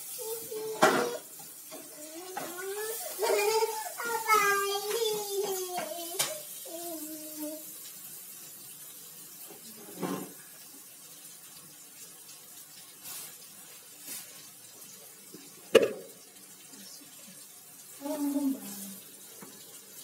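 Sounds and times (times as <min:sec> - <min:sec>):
paste sizzling in hot oil: 0:00.0 - 0:10.8, 0:12.2 - 0:16.5
knock: 0:15.8 - 0:16.1.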